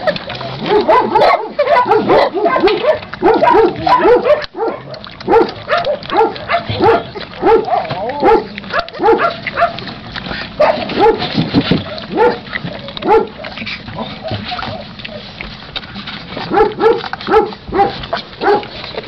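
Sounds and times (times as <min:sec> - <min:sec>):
kibble crunching: 0:00.0 - 0:19.0
puppies crying: 0:00.0 - 0:19.0.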